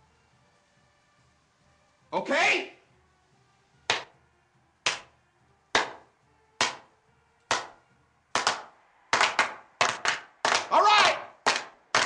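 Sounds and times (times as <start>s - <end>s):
people clapping in unison: 3.9s - 4.1s, 4.8s - 5.1s, 5.7s - 6.0s, 6.6s - 6.9s, 7.5s - 12.0s.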